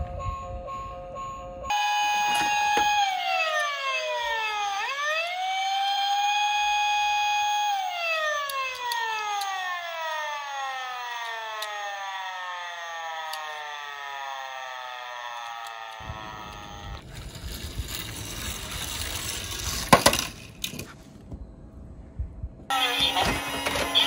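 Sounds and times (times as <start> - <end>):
siren wailing: 0.0 - 17.1, 22.7 - 24.0.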